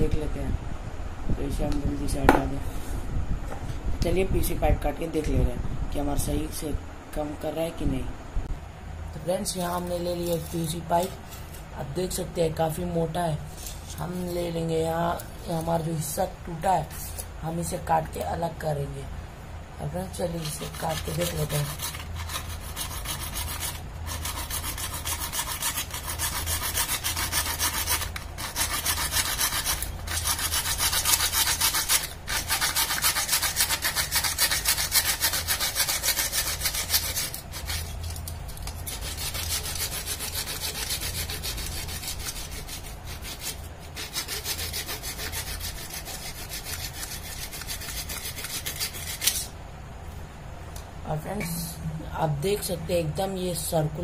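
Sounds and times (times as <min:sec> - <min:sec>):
sharp tap: 0:02.3 - 0:02.5
hand saw rasping through pipe: 0:20.4 - 0:49.5.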